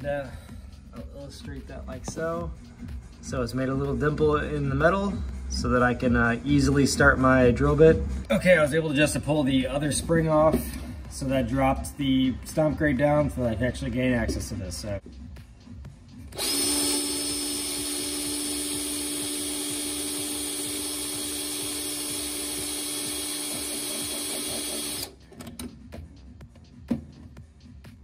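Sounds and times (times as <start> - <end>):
cordless drill motor whine: 16.3 - 25.2.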